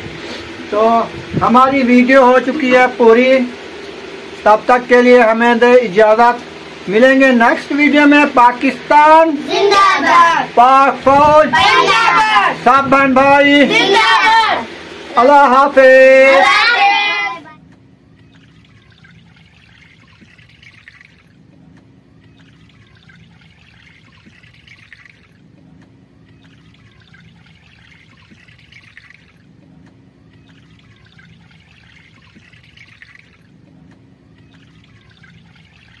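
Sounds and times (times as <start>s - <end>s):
steady low hum: 0.0s - 36.0s
water trickling and pouring: 18.2s - 21.4s, 22.1s - 25.5s, 26.2s - 29.6s, 30.2s - 33.7s, 34.3s - 36.0s.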